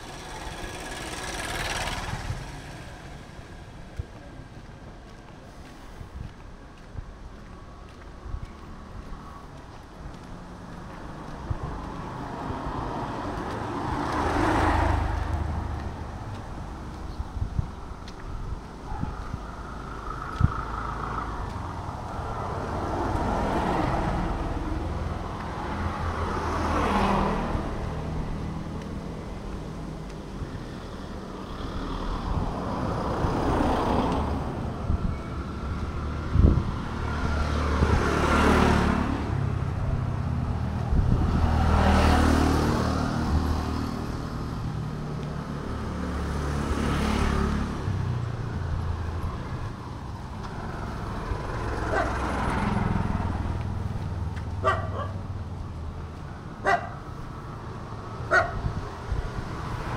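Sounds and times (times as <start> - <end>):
low engine rumble: 0.0 - 23.3
vehicles passing: 0.0 - 59.9.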